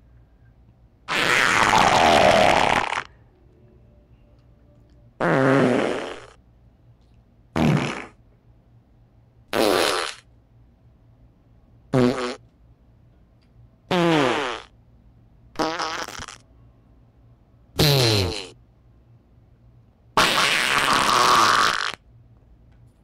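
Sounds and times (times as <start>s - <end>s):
fart sounds: 1.1s - 3.1s, 5.2s - 6.4s, 7.6s - 8.2s, 9.5s - 10.3s, 11.9s - 12.4s, 13.9s - 14.7s, 15.6s - 16.4s, 17.8s - 18.6s, 20.2s - 22.0s.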